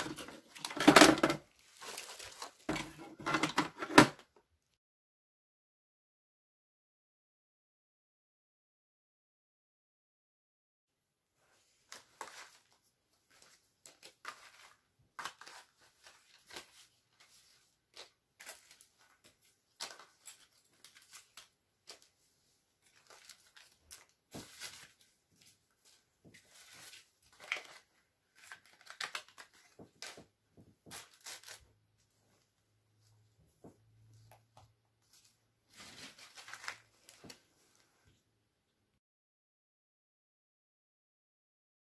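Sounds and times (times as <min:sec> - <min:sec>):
plastic packaging rustling: 0:00.0 - 0:04.0, 0:11.9 - 0:22.2, 0:22.8 - 0:31.7, 0:35.0 - 0:37.9.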